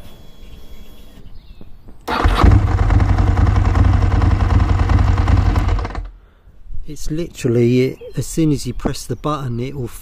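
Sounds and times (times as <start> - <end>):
motorcycle engine starting and running: 2.1 - 6.2.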